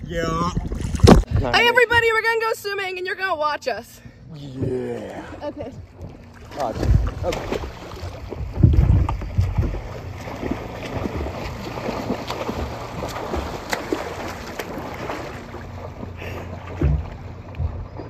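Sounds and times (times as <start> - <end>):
water lapping and sloshing: 0.0 - 2.4, 4.0 - 18.0
small sharp splashes: 6.2 - 18.0.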